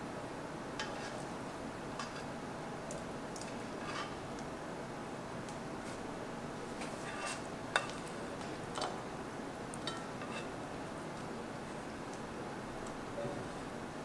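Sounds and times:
steady low hiss: 0.0s - 14.0s
spatula scraping frying pan: 0.8s - 1.2s, 3.6s - 4.2s, 7.0s - 7.9s, 9.9s - 10.6s.

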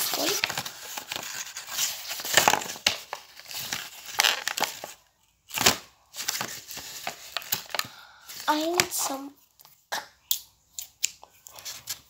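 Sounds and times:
plastic packaging crinkling: 0.0s - 9.2s.

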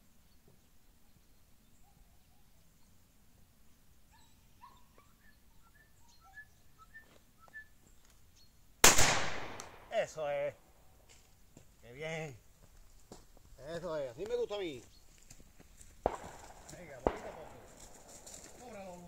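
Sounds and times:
faint short chirping calls: 4.1s - 8.6s
shotgun shot with echo: 8.8s - 10.0s, 16.0s - 17.9s.

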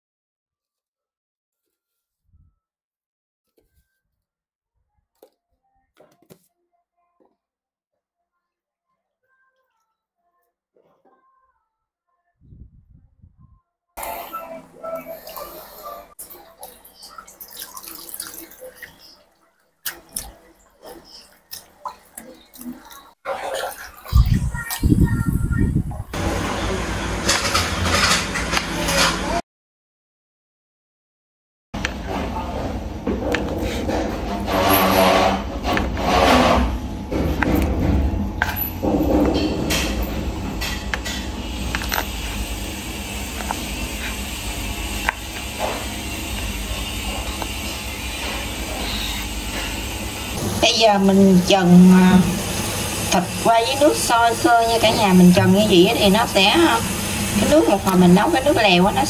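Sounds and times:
water splashing in a basin: 16.2s - 24.9s.

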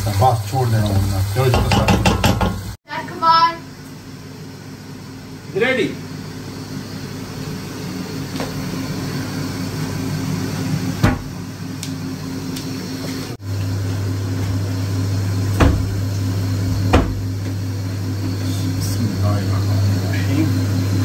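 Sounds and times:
sharp knocks: 1.5s - 2.6s.

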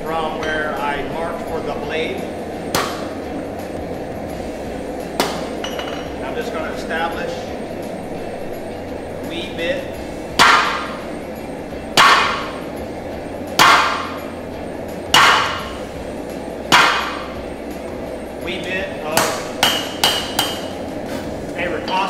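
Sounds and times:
hammer striking metal on anvil: 5.2s - 6.1s, 10.4s - 11.0s, 12.0s - 12.6s, 13.6s - 14.2s, 15.1s - 15.7s, 16.7s - 17.4s, 19.1s - 20.8s.

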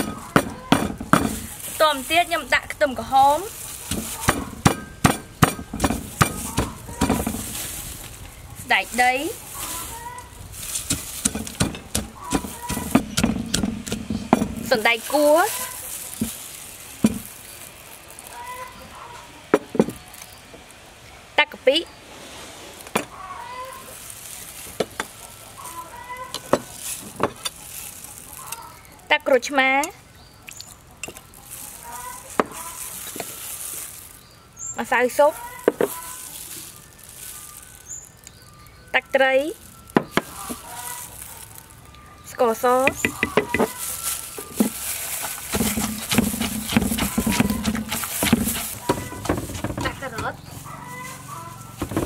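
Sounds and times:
pestle pounding in mortar: 0.0s - 1.6s, 3.8s - 7.6s, 10.6s - 15.1s, 17.0s - 17.3s, 42.9s - 43.8s, 44.5s - 50.4s, 51.8s - 52.0s
chickens clucking: 0.0s - 20.6s, 22.6s - 34.2s, 34.8s - 37.3s, 39.2s - 52.0s
spoon scraping: 42.8s - 52.0s
spoon knocking against mortar: 42.9s - 43.8s.

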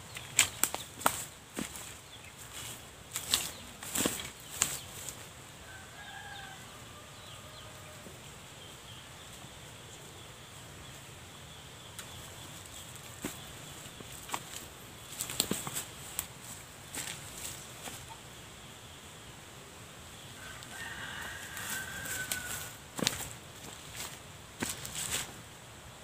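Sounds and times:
dry leaves crackling underfoot: 0.0s - 6.5s, 12.0s - 18.2s, 20.4s - 25.5s
faint outdoor background: 0.0s - 26.0s.

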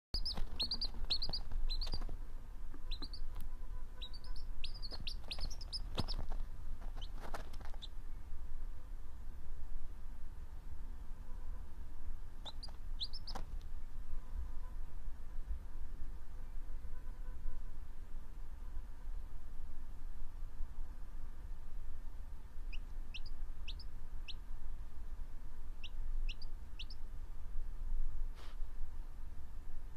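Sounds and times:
soft rustle: 0.2s - 3.5s, 4.6s - 8.0s, 28.2s - 28.8s
baby chick peeping: 0.2s - 8.0s, 12.4s - 13.6s, 22.7s - 24.4s, 25.8s - 27.0s
steady low hum: 0.2s - 29.9s.

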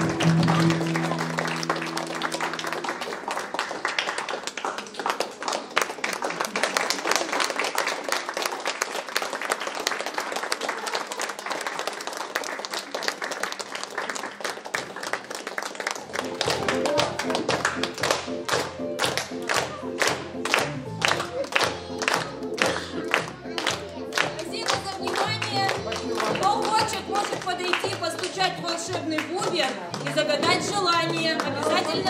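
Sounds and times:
held music chord: 0.0s - 3.6s
audience applauding: 0.0s - 32.0s.

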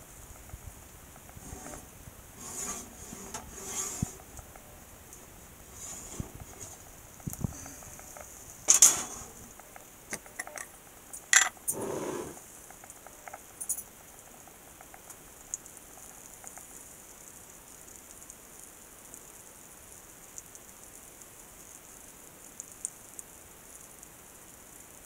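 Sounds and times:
spatula scrape: 2.4s - 4.2s.

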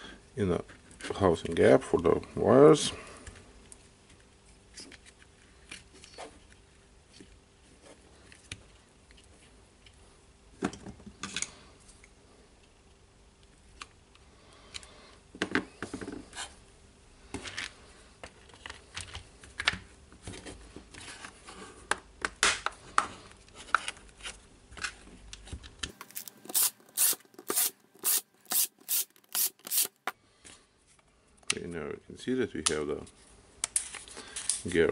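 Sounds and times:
screws being driven clicking: 26.1s - 30.1s.

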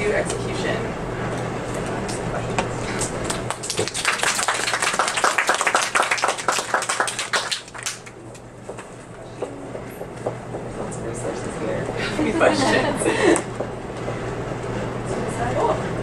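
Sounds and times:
low room hum: 0.0s - 16.0s
small group applauding: 3.0s - 8.3s.

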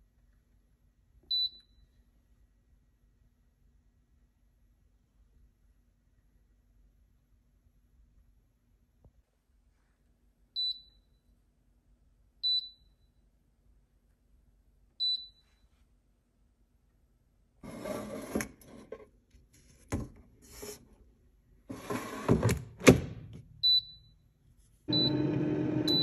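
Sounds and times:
short high beeps: 24.9s - 26.0s.

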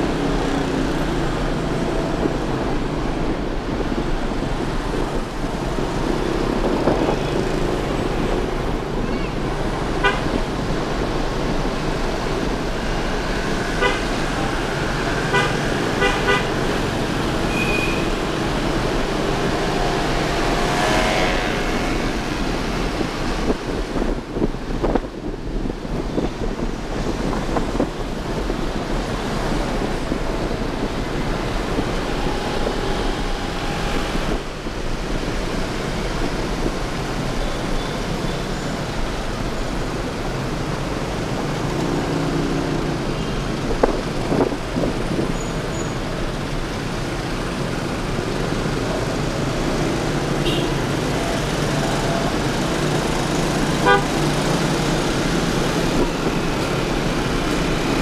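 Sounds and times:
engines rumbling: 0.0s - 58.0s
road and wind noise: 0.0s - 58.0s
vehicle horns tooting: 10.0s - 10.4s, 13.8s - 14.4s, 15.2s - 16.7s, 17.4s - 18.2s, 20.8s - 22.1s, 50.4s - 50.9s, 53.8s - 54.3s.

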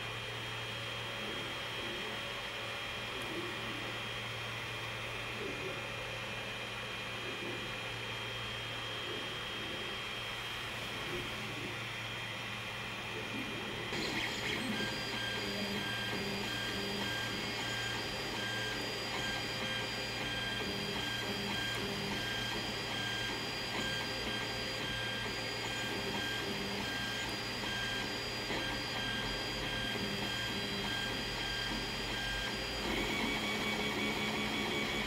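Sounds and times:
stepper motors whining: 14.0s - 35.0s.

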